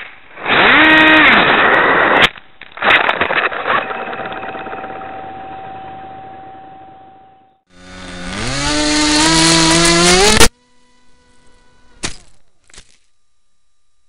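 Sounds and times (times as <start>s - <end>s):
steady tone: 3.6s - 12.0s
electric propeller whine: 3.8s - 13.9s.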